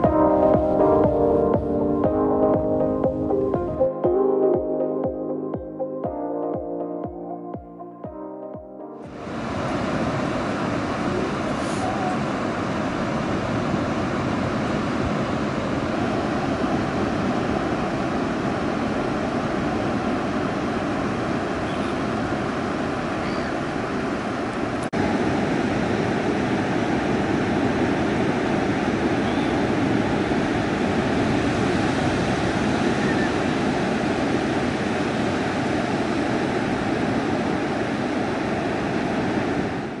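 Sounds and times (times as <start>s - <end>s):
ocean surf breaking on beach: 9.1s - 40.0s.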